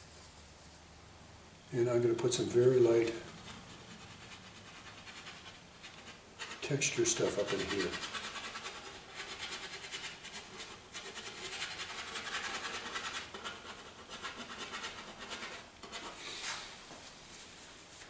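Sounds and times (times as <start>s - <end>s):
paintbrush scrubbing on canvas: 2.7s - 16.8s
brush swish: 3.1s - 12.3s.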